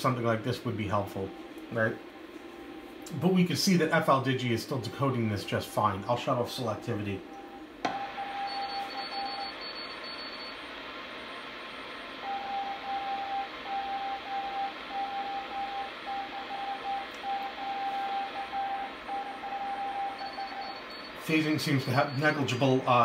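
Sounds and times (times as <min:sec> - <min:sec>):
morse code beat tone: 0:07.2 - 0:10.6, 0:12.2 - 0:23.0.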